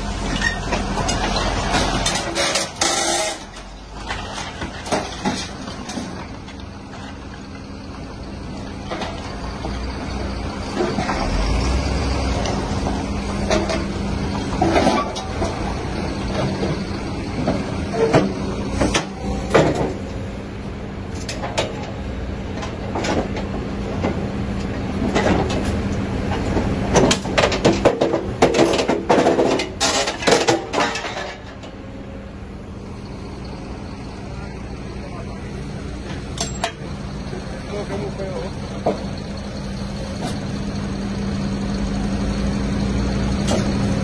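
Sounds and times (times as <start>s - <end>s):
excavator diesel engine running: 0.0s - 44.0s
metal shear snapping scrap steel: 1.1s - 3.7s.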